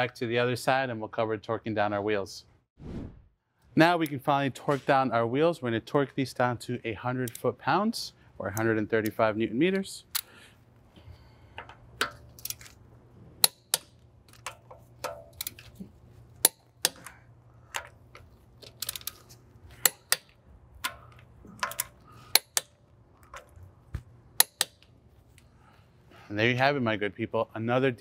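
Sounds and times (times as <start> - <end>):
torque wrench clicking: 19.8 - 22.8, 24.4 - 24.9.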